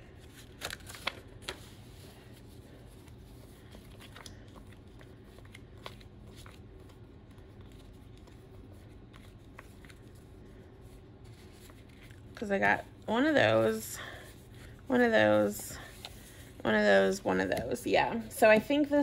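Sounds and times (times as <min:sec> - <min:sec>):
paper sheets rustling: 0:00.2 - 0:12.6.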